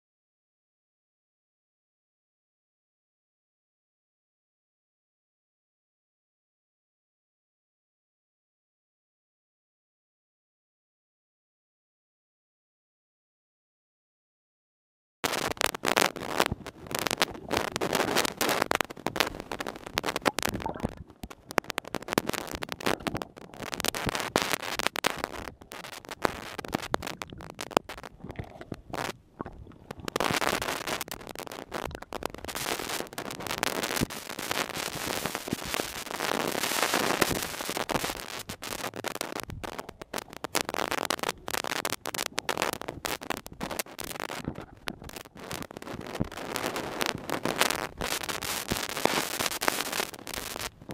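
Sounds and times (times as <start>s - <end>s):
underwater crackling and clicking: 15.2s - 50.9s.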